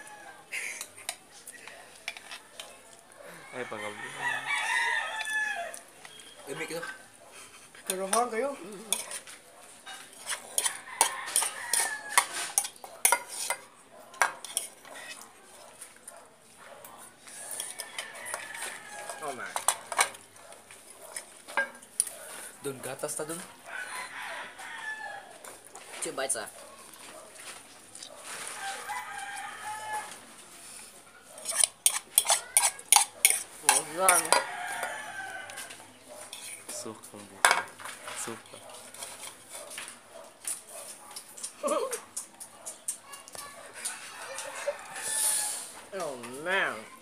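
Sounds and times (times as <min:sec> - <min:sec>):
rooster crowing: 0:00.0 - 0:00.6, 0:02.4 - 0:05.9, 0:10.6 - 0:12.5, 0:17.4 - 0:19.6, 0:23.6 - 0:25.6, 0:28.3 - 0:30.2, 0:33.7 - 0:35.9, 0:43.8 - 0:45.8
fork scraping ceramic bowl: 0:07.9 - 0:15.3, 0:17.2 - 0:20.3, 0:31.3 - 0:36.8, 0:38.1 - 0:39.9
spoon clinking against bowl: 0:31.4 - 0:34.9.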